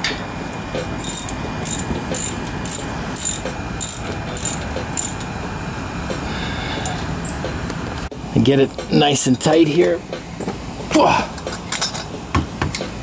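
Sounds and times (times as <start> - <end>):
socket ratchet clicking: 1.0 - 5.2.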